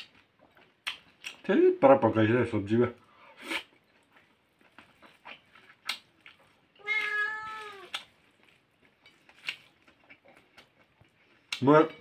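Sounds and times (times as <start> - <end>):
eating by hand clicks and smacks: 0.0 - 1.5, 3.6 - 6.8, 7.6 - 12.0
cat meowing: 6.8 - 7.9.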